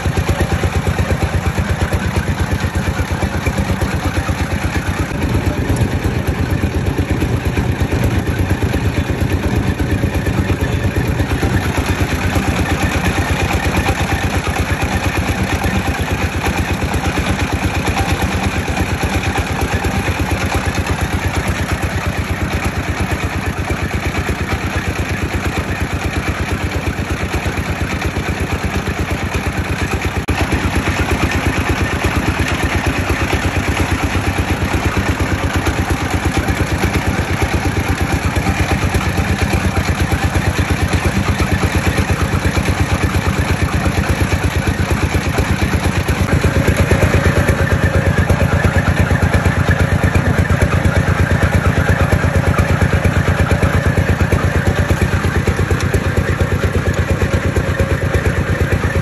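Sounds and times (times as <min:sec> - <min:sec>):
oil press engine running: 0:00.0 - 0:59.0.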